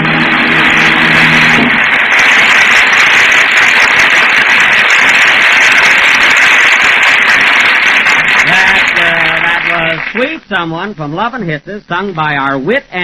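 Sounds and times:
orchestra holding note: 0.0s - 6.0s
audience applauding: 0.0s - 10.4s.

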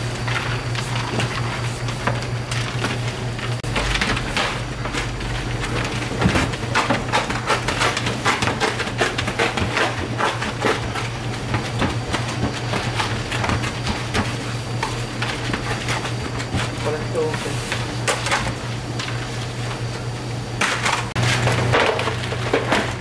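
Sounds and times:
low machine hum: 0.0s - 23.0s
utensils clattering on cookware: 20.6s - 23.0s.

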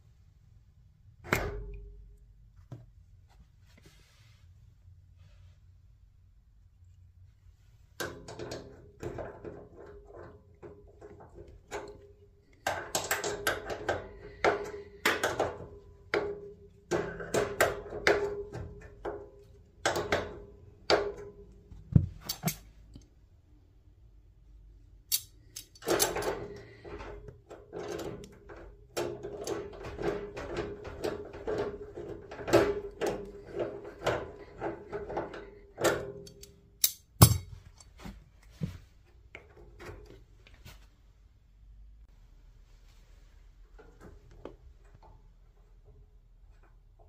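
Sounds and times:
metal tools clicking on valve: 25.1s - 26.2s, 35.4s - 37.9s.

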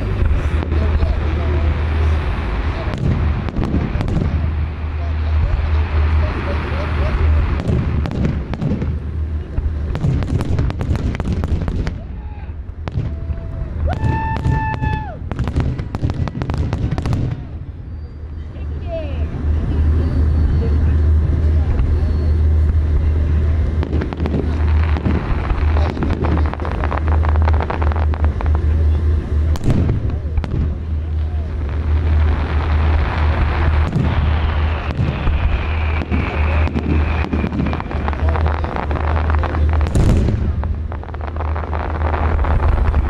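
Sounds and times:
fireworks banging and crackling: 0.0s - 43.0s
low rumble: 0.0s - 43.0s
firework falling whistle: 11.8s - 16.0s, 31.1s - 40.6s.

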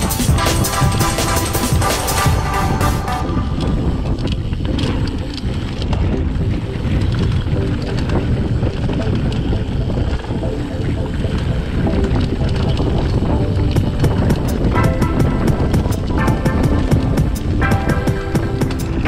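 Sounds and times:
bike clicks and rattles: 0.0s - 19.0s
bike tyre rumble on dirt: 0.0s - 19.0s
wind buffeting microphone: 0.0s - 19.0s.

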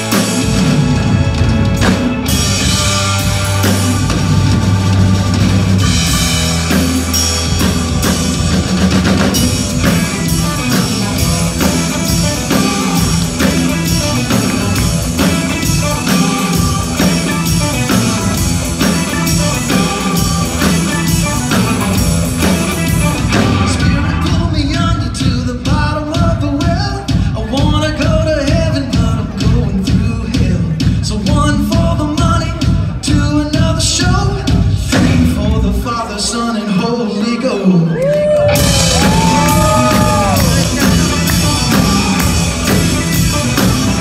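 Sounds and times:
electric guitar: 0.0s - 24.7s, 37.9s - 44.0s
electric bass: 0.0s - 36.0s, 38.0s - 44.0s
drum kit: 0.0s - 36.3s, 38.1s - 44.0s.

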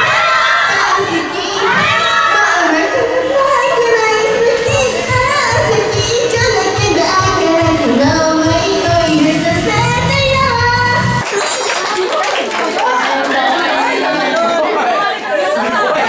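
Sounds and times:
karaoke backing track: 0.0s - 12.1s.

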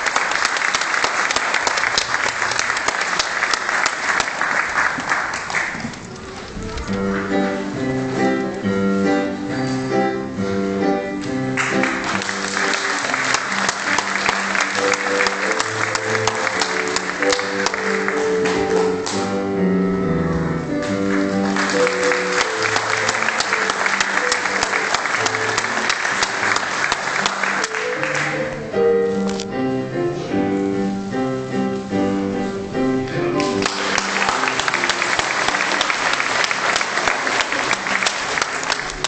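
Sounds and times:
many people clapping: 0.0s - 6.5s, 11.2s - 19.3s, 20.8s - 28.6s, 33.4s - 39.0s
instrumental music with held notes: 6.1s - 39.0s.

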